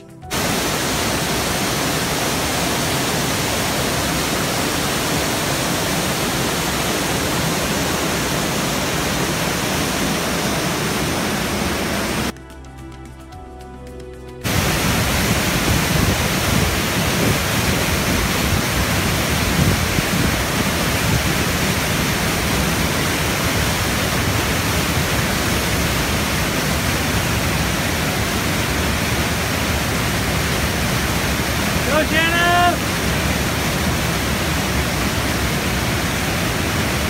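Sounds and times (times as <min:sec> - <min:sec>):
music: 0:00.0 - 0:01.8, 0:12.3 - 0:16.7
river rapids rushing: 0:00.0 - 0:12.3, 0:14.4 - 0:37.0.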